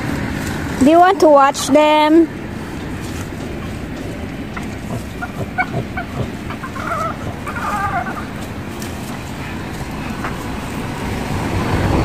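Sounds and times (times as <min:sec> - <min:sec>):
high-pitched animal calls: 0:04.9 - 0:10.5.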